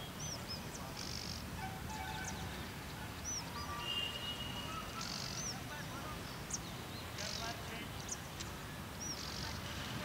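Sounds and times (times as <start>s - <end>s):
birds chirping and whistling: 0.0s - 9.7s
buzzing bird trills: 3.3s - 5.6s.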